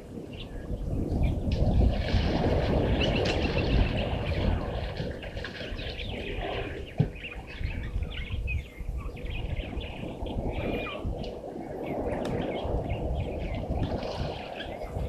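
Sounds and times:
wind rumble on microphone: 0.0s - 15.0s
birds chirping and whistling: 5.2s - 11.1s, 11.8s - 15.0s.

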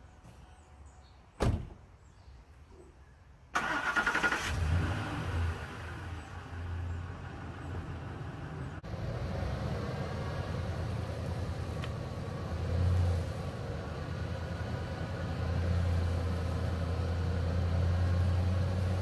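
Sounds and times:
truck door slamming: 1.4s - 1.8s
truck engine starting and running: 3.5s - 19.0s.

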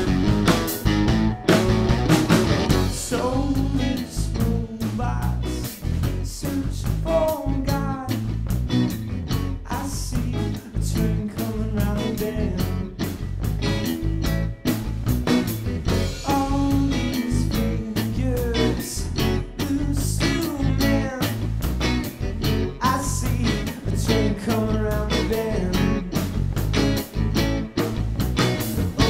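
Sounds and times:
drum hits: 0.0s - 3.1s
bass guitar: 0.0s - 29.0s
electric guitar: 0.0s - 29.0s
man singing: 2.8s - 8.4s, 9.6s - 13.0s, 16.0s - 21.6s, 22.7s - 26.3s.

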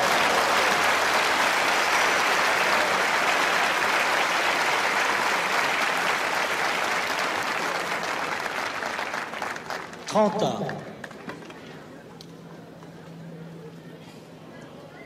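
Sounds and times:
crowd applauding: 0.0s - 11.6s.

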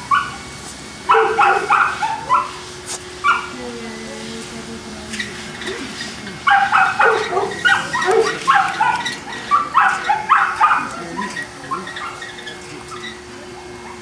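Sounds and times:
dog yipping: 0.0s - 0.4s, 1.1s - 2.6s, 3.2s - 3.5s, 6.5s - 14.0s.

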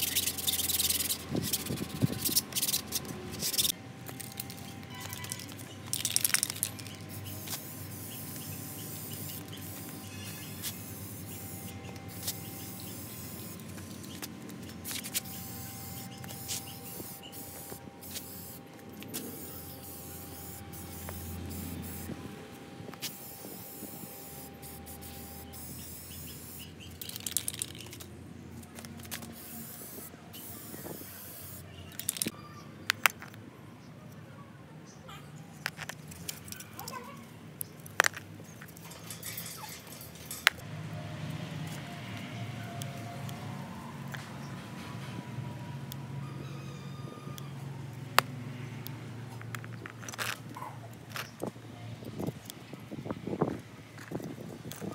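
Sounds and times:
spray paint can hissing: 0.0s - 22.2s, 22.9s - 32.4s.

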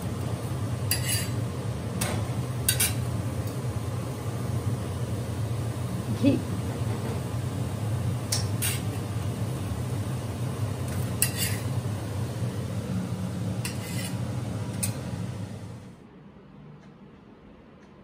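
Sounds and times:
flatbread sizzling in ghee: 0.0s - 15.9s
steel spatula scraping pan: 0.9s - 1.4s, 8.6s - 9.0s, 11.2s - 11.7s, 13.6s - 14.3s.

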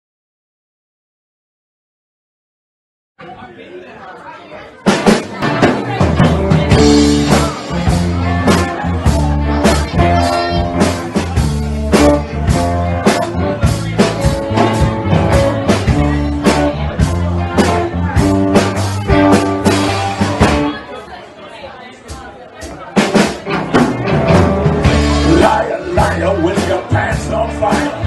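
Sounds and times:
drum kit steady beat: 4.8s - 20.8s, 22.1s - 28.0s
bass guitar: 4.9s - 20.8s, 23.0s - 28.0s
electric guitars: 5.4s - 20.8s, 23.2s - 28.0s.

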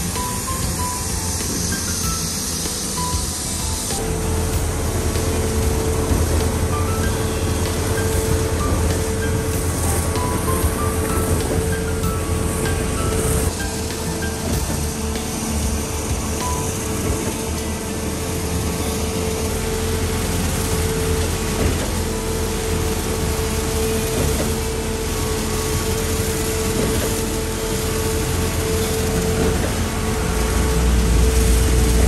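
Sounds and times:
concrete spraying machine drone: 0.0s - 32.0s.

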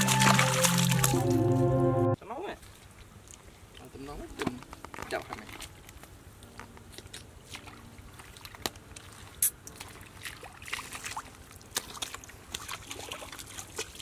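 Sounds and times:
bare feet squelching in mud: 2.6s - 14.0s.

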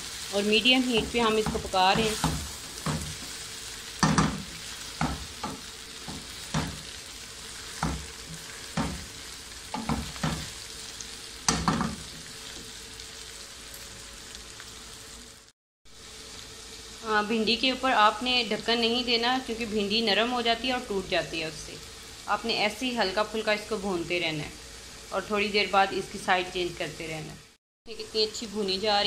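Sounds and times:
okra sizzling in oil: 0.0s - 29.0s
spatula scraping and knocking pan: 0.8s - 10.6s.

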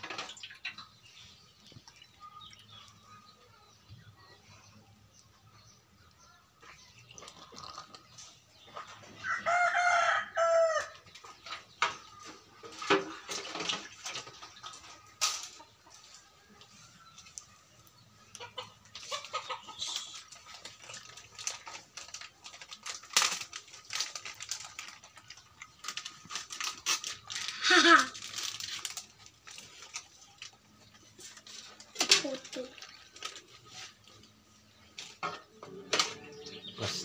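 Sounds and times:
rooster crowing: 9.2s - 10.9s.

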